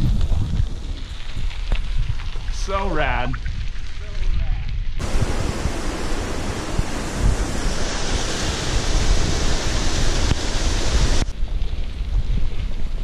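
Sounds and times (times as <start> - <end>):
wind buffeting microphone: 0.0 - 13.0
water rushing over cascade: 5.0 - 11.3.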